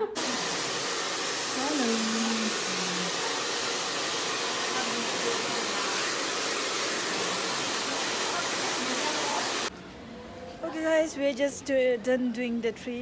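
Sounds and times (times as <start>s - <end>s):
hair dryer running: 0.0s - 9.7s.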